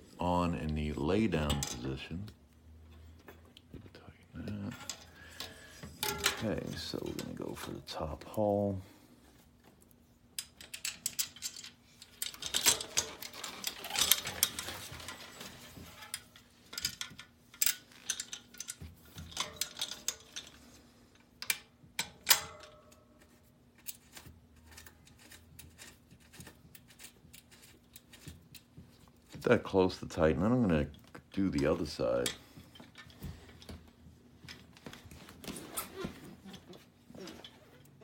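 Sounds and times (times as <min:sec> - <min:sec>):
metal bolts and washers clinking: 0:01.1 - 0:02.2, 0:04.5 - 0:08.1, 0:10.4 - 0:20.7, 0:21.4 - 0:29.6.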